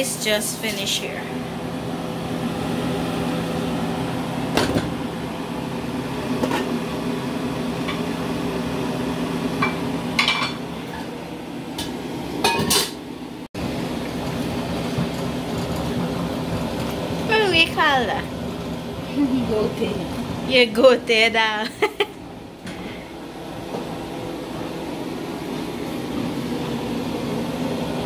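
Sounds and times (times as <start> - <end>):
steady background hum: 0.0 - 28.0
cookware clinking and knocking: 9.6 - 10.6, 12.5 - 13.0.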